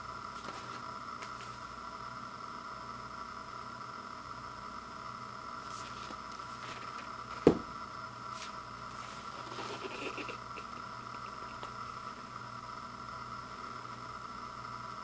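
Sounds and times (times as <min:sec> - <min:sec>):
cardboard rubbing and crinkling: 0:00.4 - 0:01.7, 0:05.6 - 0:07.4, 0:08.3 - 0:10.0
sharp knock on cardboard: 0:07.4 - 0:07.7.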